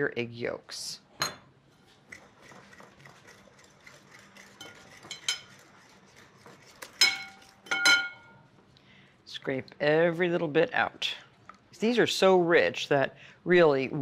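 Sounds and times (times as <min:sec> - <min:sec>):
spatula scraping glass bowl: 0:01.8 - 0:08.2
glass clinks: 0:07.0 - 0:08.4.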